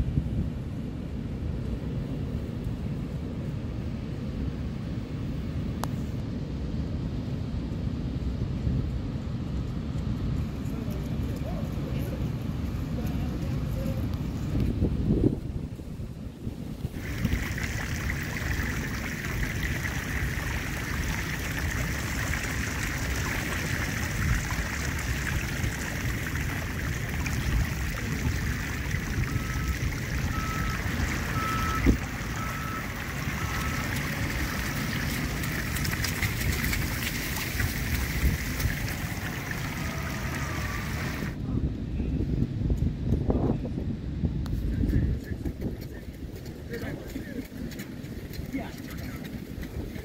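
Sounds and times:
wind: 0.0 - 50.0
distant surf: 16.5 - 41.4
reversing alarm beeps: 29.3 - 33.9.

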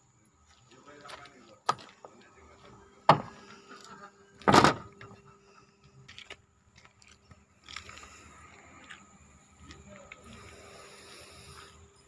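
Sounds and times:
truck door slamming: 3.1 - 3.4, 4.4 - 5.2.

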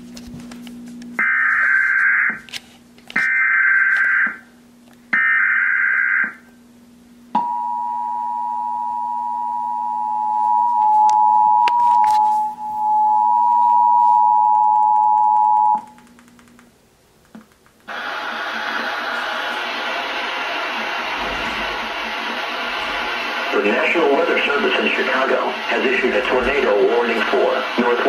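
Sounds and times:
two-tone attention signal: 7.4 - 15.9.

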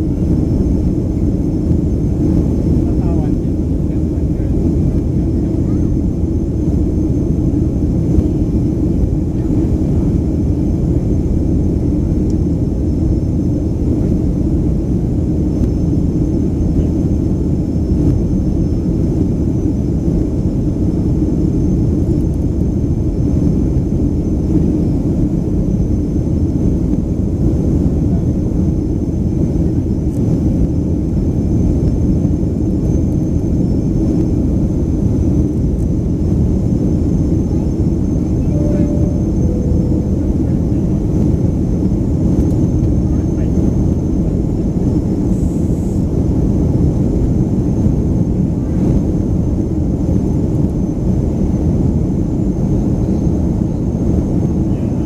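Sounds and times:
airplane cabin roar: 0.0 - 55.0
faint high whine: 23.0 - 47.0.

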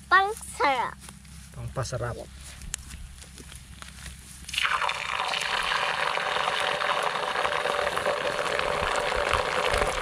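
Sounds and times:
garlic sizzling in hot oil: 4.5 - 10.0.

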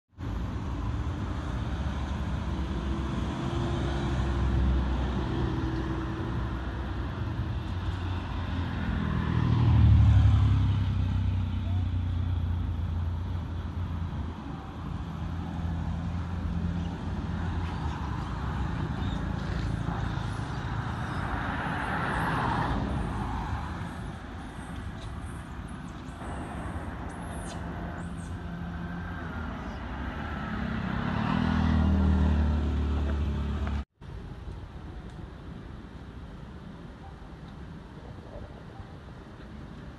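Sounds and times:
vehicle engine humming: 0.2 - 39.9.

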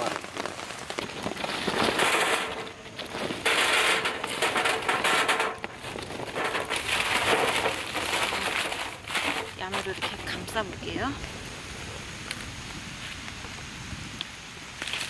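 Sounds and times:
charcoal clattering onto metal grate: 0.9 - 10.8.

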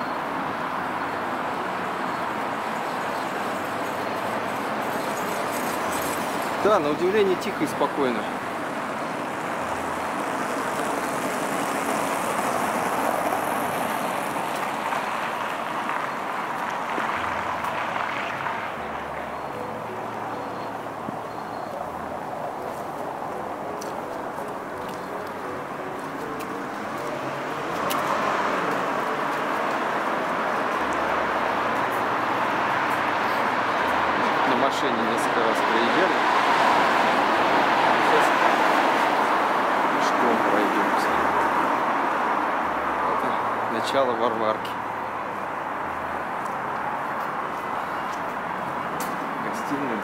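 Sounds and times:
car tyres hissing on street: 8.0 - 18.7, 26.8 - 44.0.

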